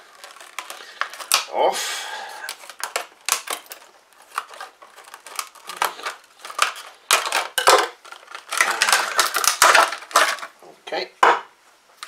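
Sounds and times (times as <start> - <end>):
plastic crackling and snapping: 0.0 - 1.6, 2.4 - 10.6
scissors cutting stiff plastic: 0.1 - 1.5, 2.5 - 10.4.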